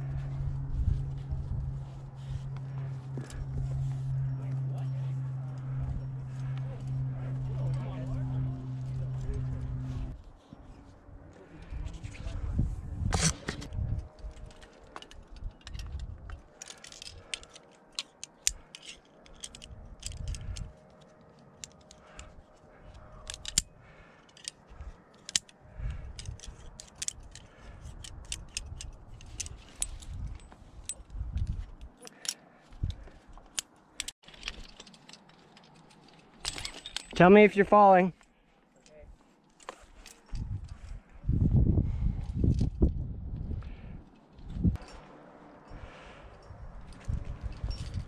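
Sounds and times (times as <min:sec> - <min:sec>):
metal carabiners clinking: 0:00.9 - 0:10.8, 0:13.6 - 0:37.7, 0:43.7 - 0:48.0.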